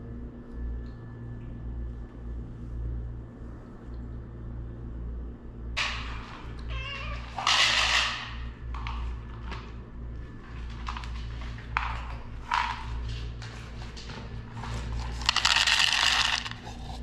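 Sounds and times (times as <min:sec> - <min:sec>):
steady low hum: 0:00.0 - 0:17.0
cat meowing: 0:06.6 - 0:07.4.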